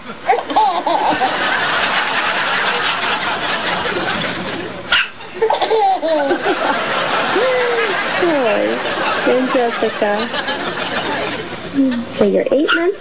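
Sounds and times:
background laughter: 0.0s - 12.2s
baby laughing in squeals: 0.3s - 1.3s, 5.4s - 6.4s.

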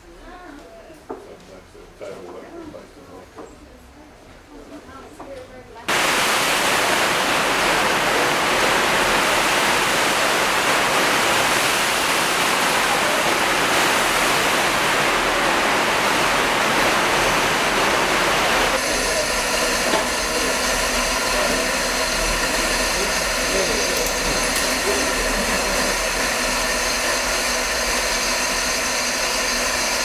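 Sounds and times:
steam hissing: 5.9s - 30.0s.

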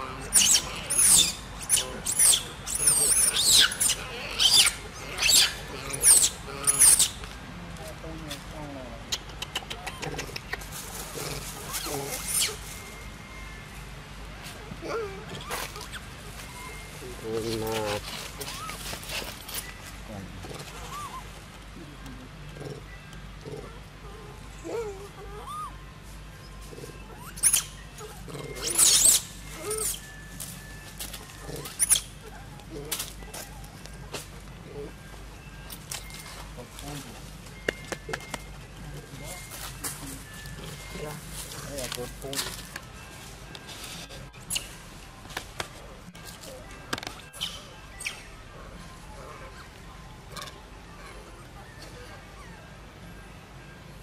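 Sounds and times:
baby monkey squealing: 0.0s - 7.2s, 9.1s - 12.7s, 14.8s - 16.9s, 17.6s - 19.3s, 20.4s - 21.3s, 23.6s - 25.8s, 26.5s - 30.2s, 31.2s - 34.0s, 47.3s - 48.4s.

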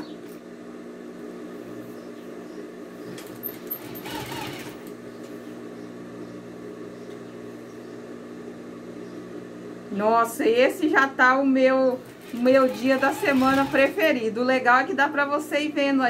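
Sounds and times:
sewing machine running: 3.2s - 5.0s, 11.9s - 14.2s.

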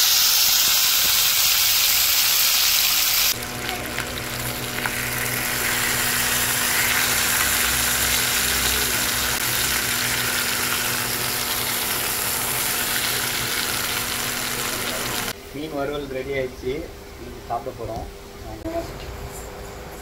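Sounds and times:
fish sizzling in hot oil: 0.0s - 15.3s.

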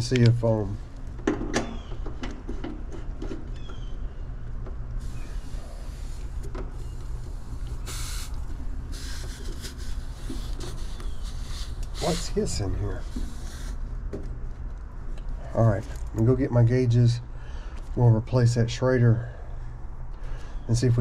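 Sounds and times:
air conditioner humming: 0.0s - 21.0s
refrigerant hissing: 5.0s - 13.9s.

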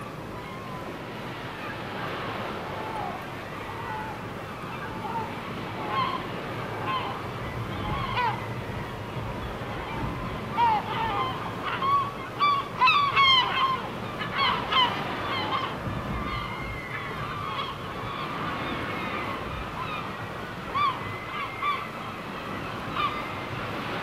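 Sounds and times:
wind noise: 4.8s - 12.5s, 13.8s - 24.0s.

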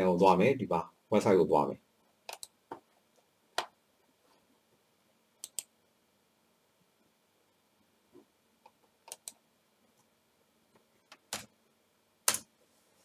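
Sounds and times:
computer mouse clicks: 2.3s - 2.6s, 5.4s - 5.7s, 8.6s - 9.4s.

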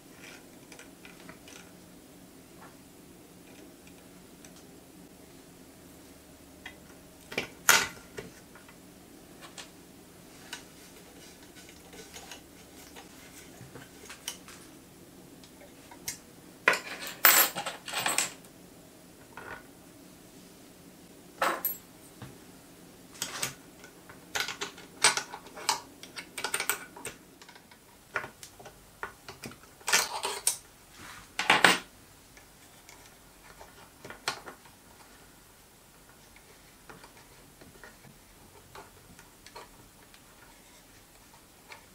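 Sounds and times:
faint steady hum: 0.0s - 41.9s.

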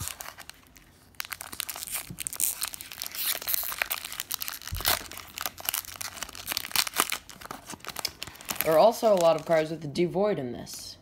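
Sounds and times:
foil wrapper crinkling and tearing: 0.0s - 9.9s.

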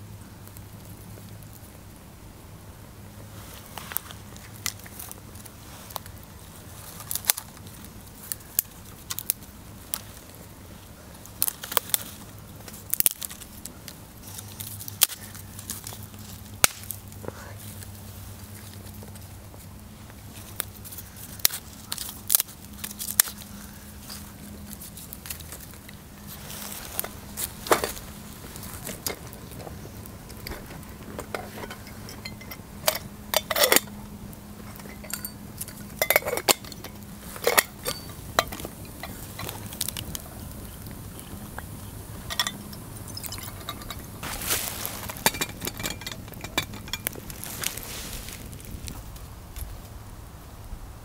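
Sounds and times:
campfire crackling: 0.0s - 51.0s
sticks popping and snapping: 3.6s - 6.2s, 6.8s - 10.4s, 11.2s - 32.2s, 34.6s - 49.8s
metal kettle clinking: 31.2s - 33.9s, 34.6s - 39.5s, 42.2s - 44.1s, 45.1s - 47.1s.

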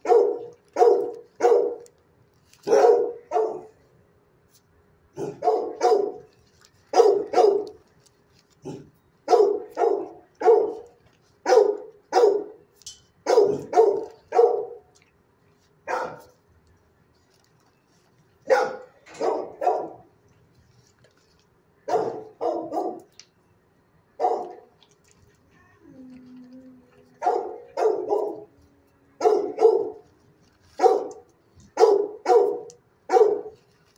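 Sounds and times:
dog barking: 0.0s - 1.9s, 2.6s - 3.8s, 5.2s - 6.3s, 6.9s - 7.8s, 8.7s - 12.6s, 13.2s - 14.8s, 15.9s - 16.4s, 18.5s - 20.1s, 21.9s - 23.1s, 24.2s - 24.7s, 27.2s - 28.5s, 29.2s - 30.0s, 30.8s - 31.2s, 31.8s - 33.6s.

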